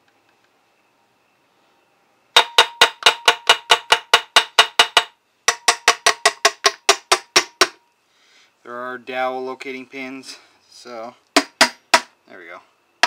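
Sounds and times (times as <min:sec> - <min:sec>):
sharp metallic taps ringing: 0:02.4 - 0:07.8.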